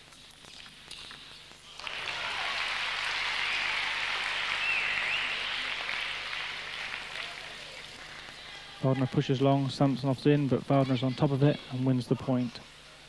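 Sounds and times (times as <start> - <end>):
crowd applauding: 1.7 - 9.2.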